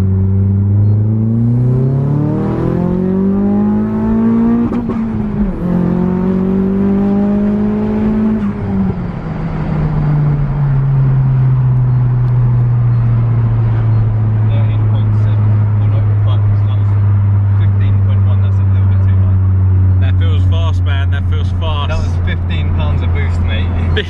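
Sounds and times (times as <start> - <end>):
car engine revving inside cabin: 0.0 - 24.0.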